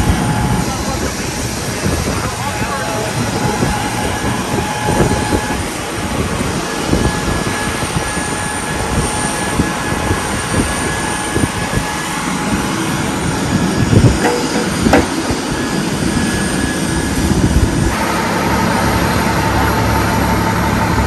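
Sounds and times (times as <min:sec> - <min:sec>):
aircraft turbine rush and whine: 0:00.0 - 0:21.0
metal loading ramps clanking: 0:14.2 - 0:15.4.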